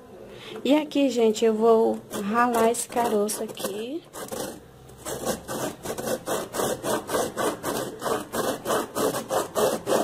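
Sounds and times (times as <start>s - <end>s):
seed grated on grater: 1.8s - 10.0s.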